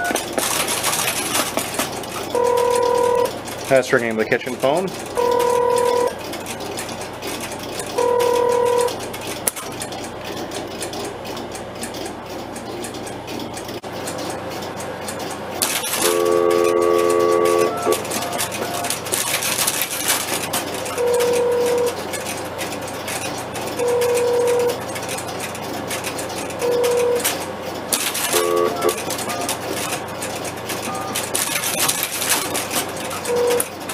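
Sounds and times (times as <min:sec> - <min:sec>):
relays clicking and clattering: 0:00.0 - 0:33.9
telephone ringback beeps: 0:02.4 - 0:03.3, 0:05.2 - 0:06.1, 0:08.0 - 0:08.9, 0:16.0 - 0:18.9, 0:21.0 - 0:21.9, 0:23.8 - 0:24.8, 0:26.6 - 0:27.2, 0:28.3 - 0:29.5, 0:33.3 - 0:33.7
multi-pitch tone: 0:16.0 - 0:19.0.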